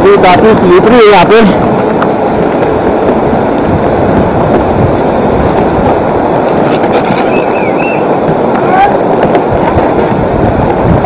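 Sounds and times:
river rushing: 0.0s - 11.0s.

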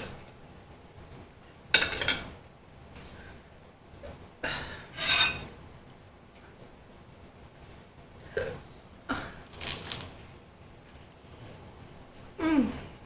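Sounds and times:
cutlery clinking on dishes: 1.8s - 2.4s
cutlery scraping clatter: 5.0s - 5.5s.

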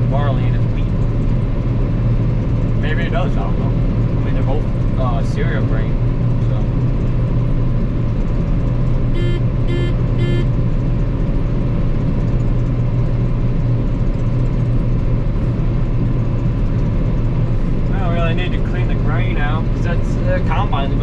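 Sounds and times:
combine engine drone in cab: 0.0s - 21.0s
short beeps: 9.2s - 10.5s.

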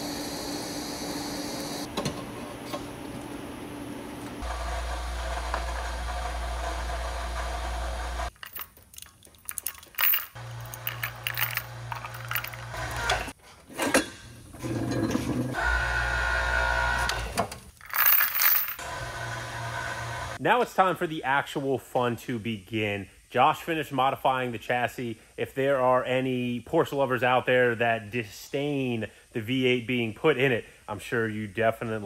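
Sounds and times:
chain hoist chain rattling: 8.3s - 13.3s, 17.8s - 18.8s.

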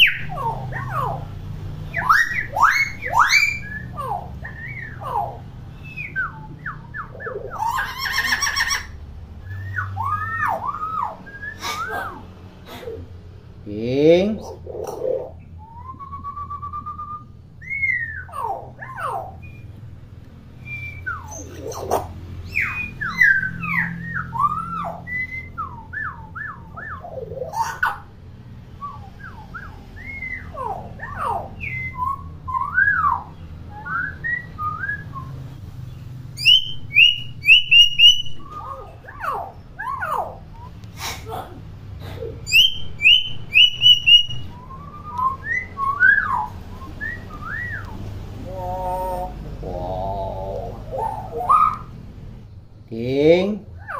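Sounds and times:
myna whistling and chattering: 9.4s - 13.1s, 20.6s - 28.0s, 36.4s - 41.4s, 42.0s - 52.0s.

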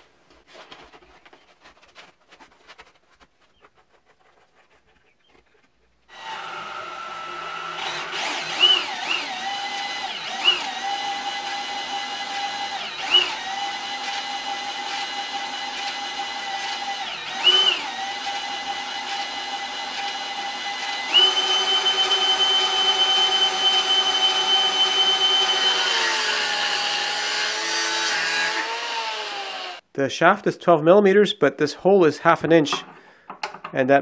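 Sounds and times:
angle grinder cutting steel: 6.1s - 29.8s
cordless drill whining: 6.1s - 29.8s.

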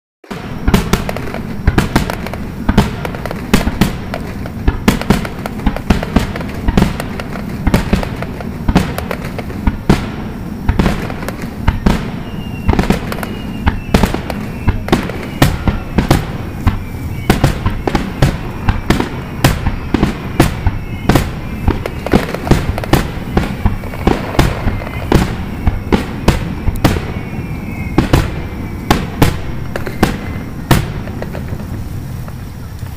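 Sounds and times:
fireworks bursting: 0.2s - 32.9s
fireworks crackling: 0.2s - 32.9s
thin falling whistle tones: 11.3s - 30.7s.

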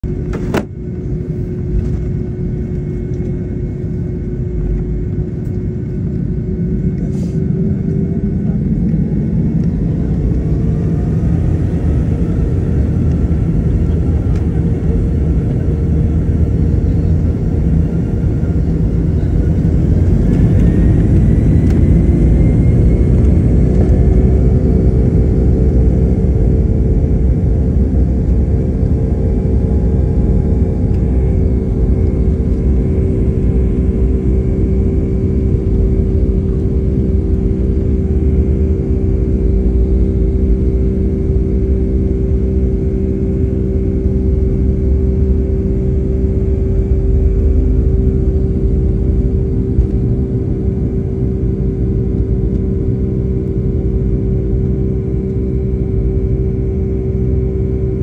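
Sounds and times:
deep rumble: 0.0s - 58.0s
jet engines spooling up: 6.6s - 26.8s.

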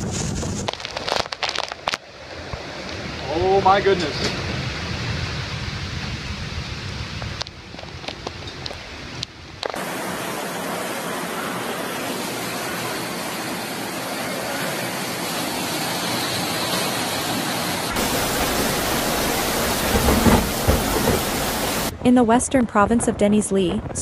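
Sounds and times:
floodwater rushing: 9.7s - 21.9s.

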